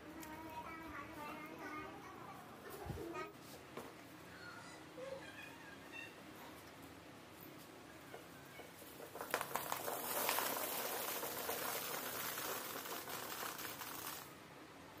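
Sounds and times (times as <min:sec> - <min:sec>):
garlic bulbs clattering into sack: 0:08.8 - 0:14.3
garlic bulbs knocking: 0:09.0 - 0:14.2.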